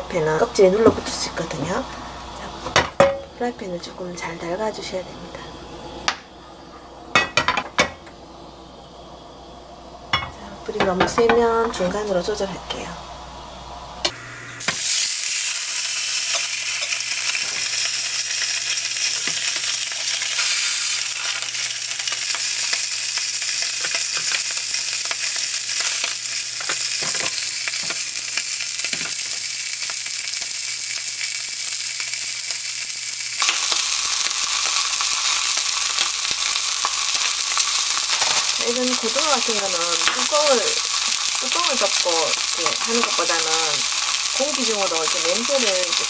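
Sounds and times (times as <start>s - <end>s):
fish sizzling in frying pan: 14.1s - 46.0s.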